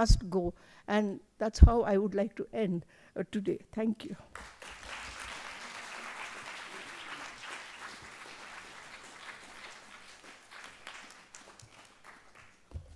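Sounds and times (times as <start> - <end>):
audience applauding: 4.3 - 12.7.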